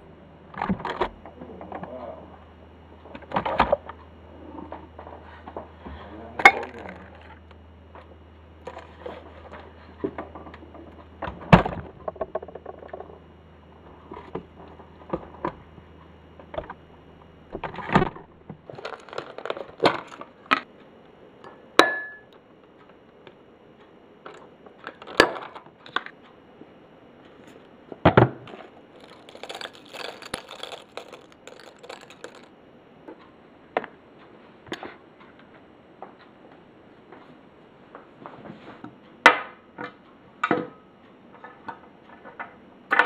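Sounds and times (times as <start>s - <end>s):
cereal flakes poured into bowl: 6.5s - 7.1s, 18.8s - 20.2s, 29.0s - 32.5s.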